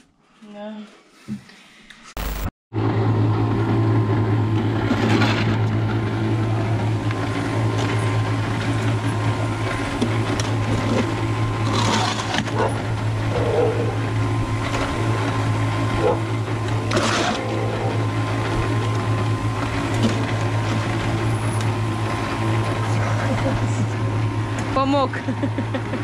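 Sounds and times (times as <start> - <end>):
concrete mixer humming: 2.2 - 26.0
shovel scraping mortar in metal trough: 10.8 - 12.7.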